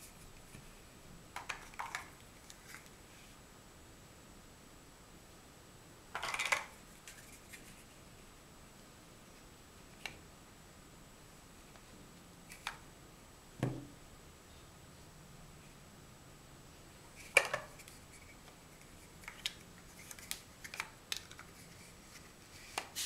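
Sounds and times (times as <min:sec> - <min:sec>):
dull knock: 0:13.6 - 0:13.9.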